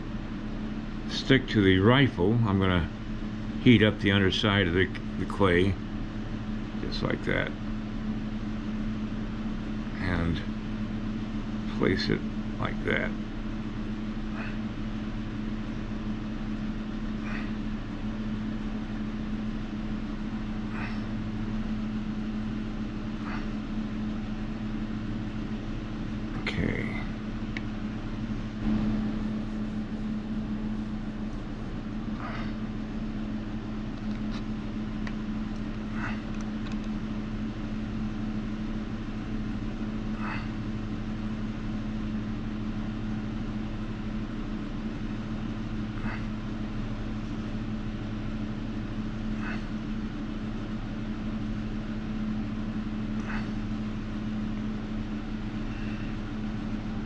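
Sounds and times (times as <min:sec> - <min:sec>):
low machine hum: 0:00.0 - 0:57.0
faint clicks and taps: 0:34.0 - 0:37.0.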